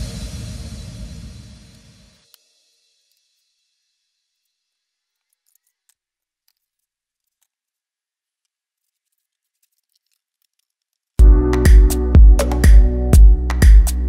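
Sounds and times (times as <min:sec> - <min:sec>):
electronic dance music: 0:11.2 - 0:14.0.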